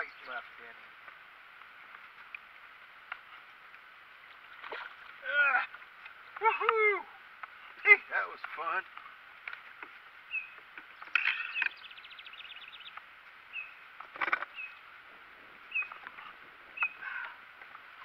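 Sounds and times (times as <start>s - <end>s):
bird call with rattling trill: 10.3s - 14.9s, 15.7s - 17.4s
short high bird chirp: 11.2s - 12.9s, 16.8s - 17.0s.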